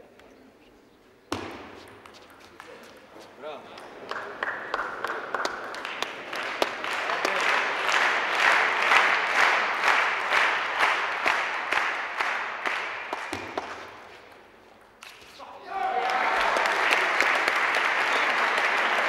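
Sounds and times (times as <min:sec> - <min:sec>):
spectators applauding: 0:04.0 - 0:13.8, 0:15.7 - 0:19.0.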